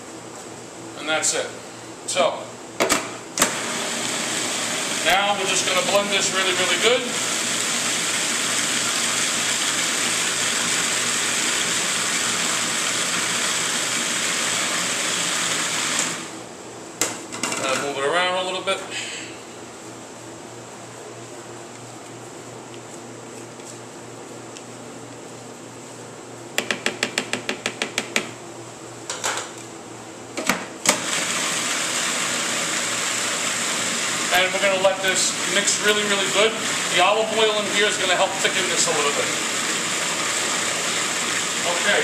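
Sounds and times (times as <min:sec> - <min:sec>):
electric food processor running: 0:03.4 - 0:16.4, 0:30.9 - 0:42.0.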